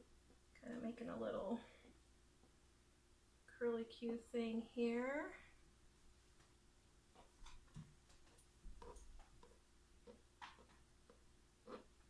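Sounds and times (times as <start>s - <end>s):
metal spoon scraping soap: 8.8s - 12.0s.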